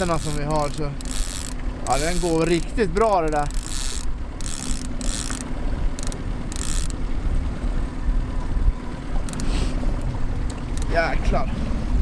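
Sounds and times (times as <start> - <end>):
fishing reel ratcheting buzz: 0.0 - 7.0, 9.3 - 9.5
boat motor humming: 0.0 - 12.0.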